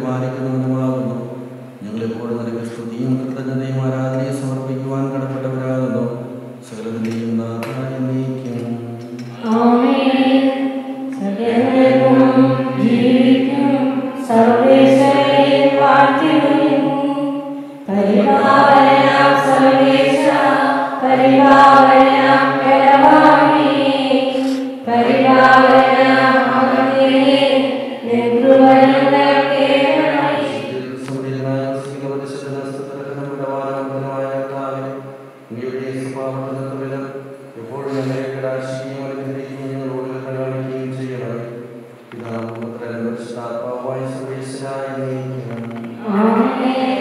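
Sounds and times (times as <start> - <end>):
man chanting: 0.0 - 17.2, 17.9 - 47.0
choir chanting: 9.2 - 34.9, 45.9 - 47.0.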